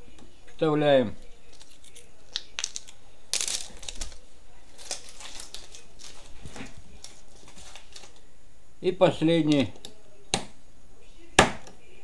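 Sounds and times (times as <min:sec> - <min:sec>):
batteries clicking into plastic holder: 0:01.5 - 0:04.2.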